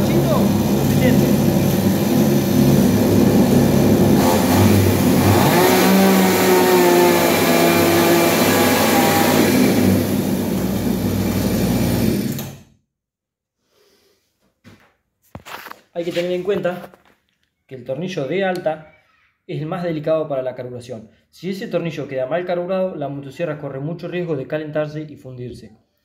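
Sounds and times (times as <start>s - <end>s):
chainsaw engine revving: 0.0s - 12.6s.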